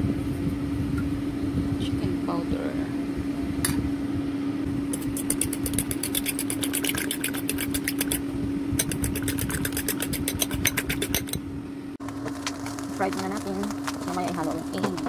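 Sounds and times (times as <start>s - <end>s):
steady low hum: 0.0s - 15.0s
whisk clicking against bowl: 5.0s - 8.2s, 8.8s - 11.4s.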